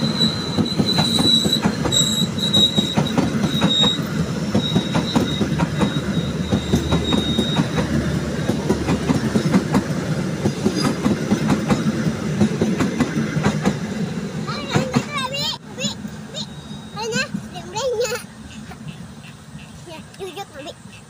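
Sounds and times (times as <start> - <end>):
high-pitched squeal: 0.0 - 8.8
train wheels clacking over rail joints: 0.0 - 15.9.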